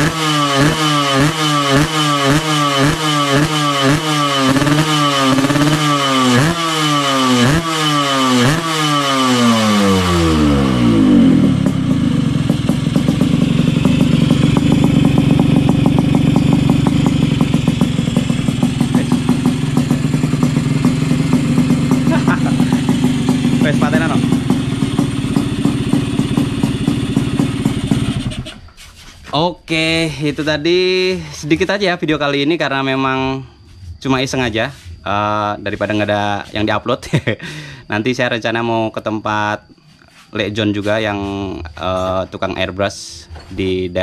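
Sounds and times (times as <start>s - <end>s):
motorcycle engine revving and idling: 0.0s - 28.9s.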